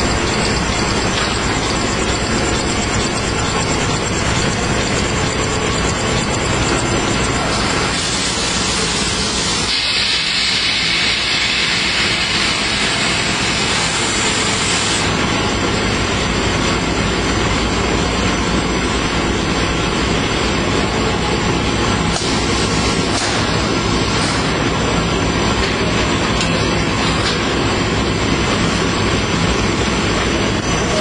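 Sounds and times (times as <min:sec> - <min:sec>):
industrial machine noise with hiss: 0:00.0 - 0:31.0.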